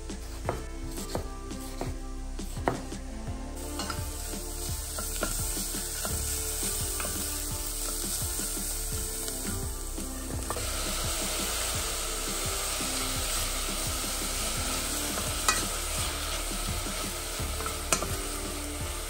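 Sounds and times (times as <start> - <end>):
wooden spatula stirring and scraping: 0.0 - 19.0
vegetables sizzling in oil: 0.1 - 19.0
knife chopping on wooden board: 0.4 - 3.0.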